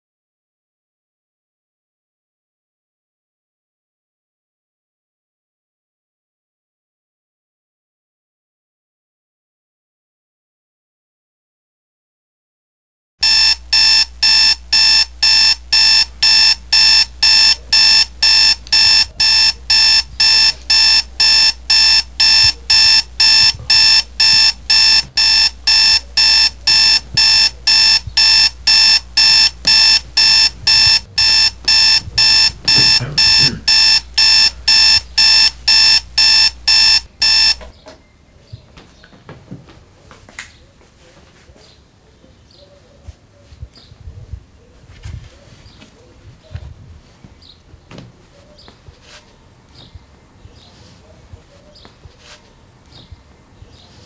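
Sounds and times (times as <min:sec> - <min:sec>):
clock radio alarm beeping: 0:13.2 - 0:37.7.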